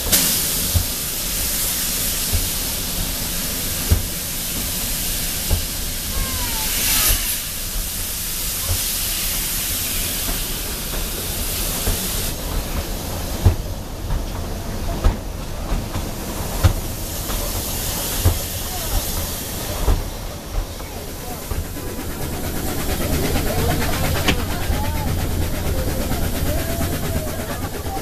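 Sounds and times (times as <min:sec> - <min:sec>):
steam hiss: 0:00.0 - 0:13.9, 0:15.1 - 0:28.0.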